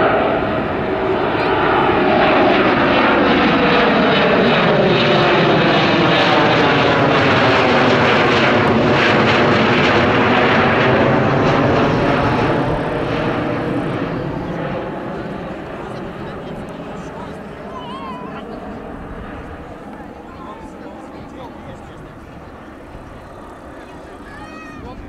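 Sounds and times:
jet airliner roar passing: 0.0 - 25.0.

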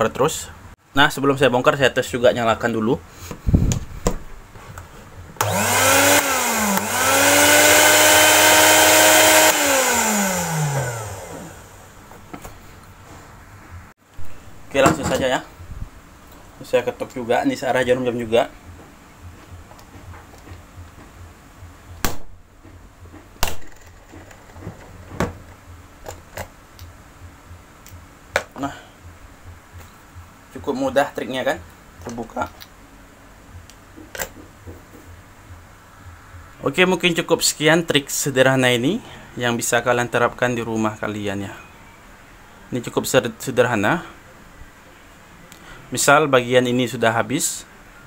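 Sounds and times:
blender motor whining: 5.4 - 11.9.

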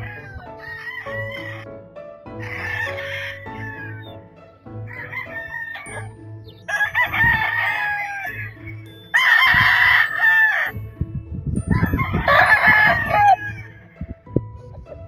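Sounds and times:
roosters crowing: 0.0 - 1.7, 2.4 - 4.2, 4.9 - 6.0, 6.6 - 10.7, 11.8 - 13.9.

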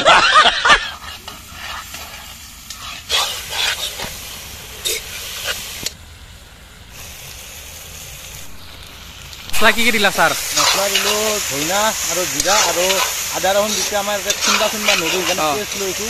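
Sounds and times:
meat sizzling in a pan: 0.2 - 16.0
spoon stirring and scraping a pan: 0.7 - 4.1, 10.2 - 16.0.

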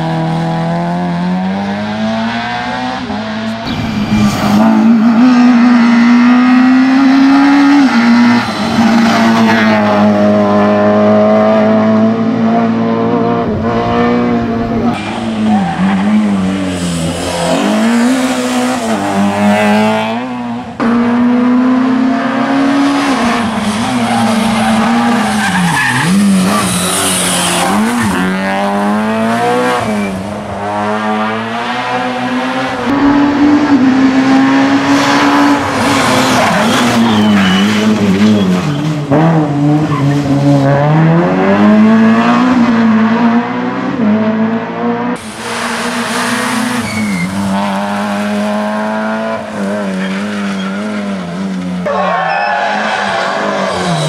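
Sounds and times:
rally car engine revving: 0.0 - 54.0
tyres squealing: 36.3 - 39.0, 46.8 - 47.5, 51.9 - 54.0.

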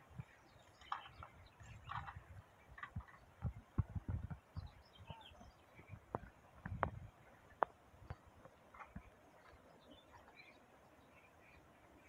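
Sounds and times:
faint bird chirps: 4.5 - 6.2.

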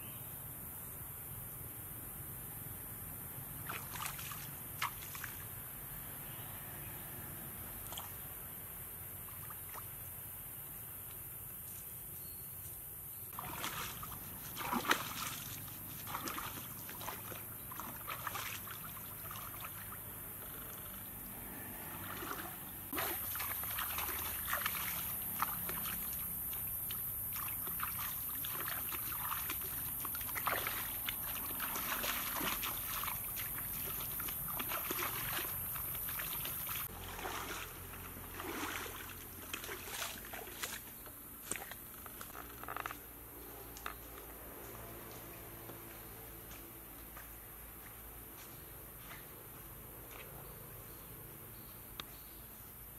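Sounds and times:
water splashing as person wades: 3.6 - 5.5, 13.3 - 20.8, 21.7 - 42.9.

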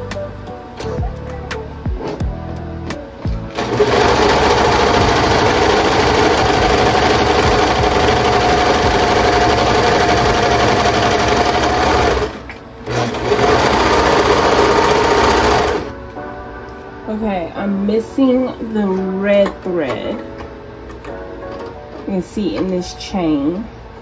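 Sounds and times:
overlocker sewing machine running: 3.5 - 15.9.

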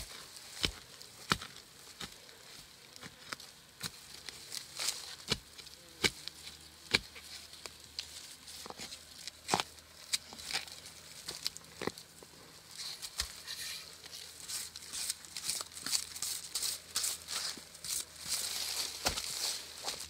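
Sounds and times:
dry leaf litter crackling: 0.0 - 20.0
knife cutting bamboo shoots: 3.0 - 7.4.

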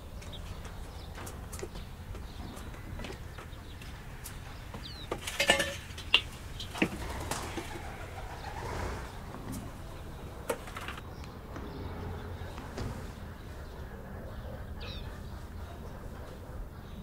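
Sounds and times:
household objects clinking: 5.2 - 6.1
faint bird calls: 6.1 - 17.0.

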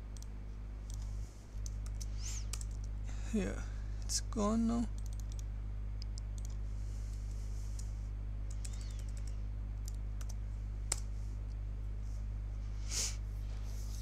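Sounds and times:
steady low hum: 0.0 - 14.0
computer keyboard keystrokes: 0.9 - 2.9, 5.0 - 6.6, 8.5 - 11.1.

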